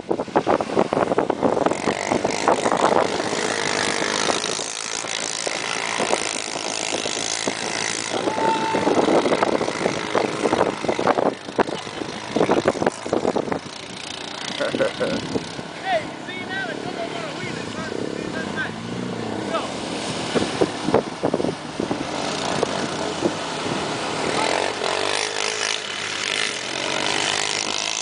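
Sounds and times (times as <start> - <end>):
atv engines running: 0.0 - 28.0
water splashing off wheels: 0.1 - 28.0.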